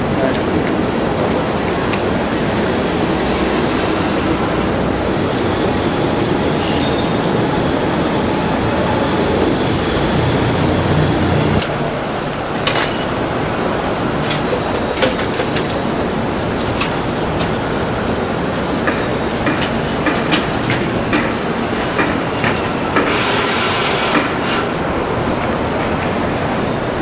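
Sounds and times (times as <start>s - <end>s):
city street traffic: 0.0s - 27.0s.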